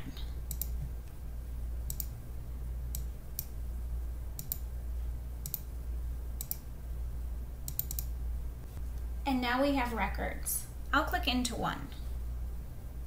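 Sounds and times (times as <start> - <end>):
low electrical hum: 0.0 - 13.0
computer mouse clicking: 0.4 - 0.8, 1.8 - 2.1, 2.9 - 3.6, 4.4 - 4.7, 5.4 - 5.7, 6.4 - 6.7, 7.7 - 8.1.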